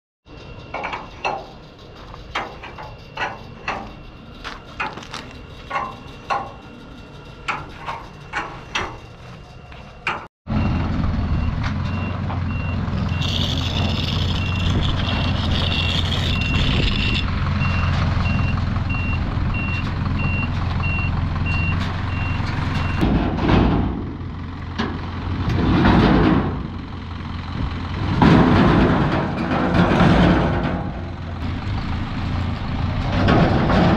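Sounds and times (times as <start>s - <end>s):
reversing beeps: 0.3s - 9.7s, 10.6s - 23.0s
metal chassis scraping and grinding: 0.3s - 10.3s, 11.7s - 18.4s, 21.5s - 26.9s, 27.9s - 33.9s
truck engine running: 0.3s - 33.9s.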